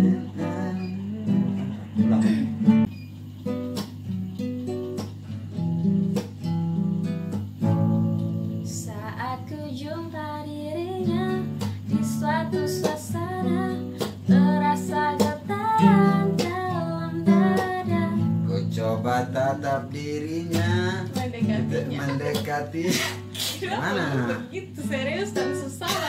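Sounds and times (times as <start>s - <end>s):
acoustic guitar strumming: 0.0s - 26.0s
woman singing: 8.6s - 18.7s, 20.6s - 26.0s.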